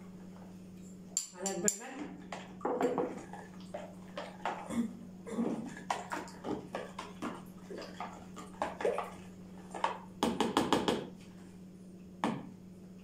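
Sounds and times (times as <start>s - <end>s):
steady low hum: 0.0s - 10.4s.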